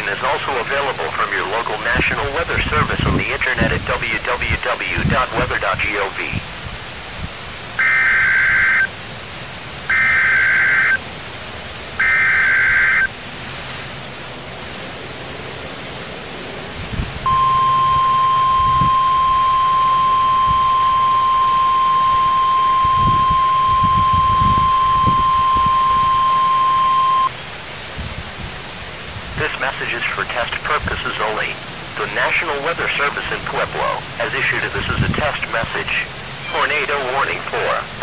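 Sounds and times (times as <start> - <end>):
radio hiss: 0.0 - 6.6, 7.6 - 11.0, 12.0 - 13.2, 17.3 - 27.4, 29.3 - 38.0
data tone bursts: 7.8 - 8.9, 9.9 - 11.0, 12.0 - 13.1, 17.3 - 27.3, 36.4 - 37.5
steady warning alarm tone: 7.8 - 8.9, 9.9 - 11.0, 12.0 - 13.1, 17.3 - 27.3.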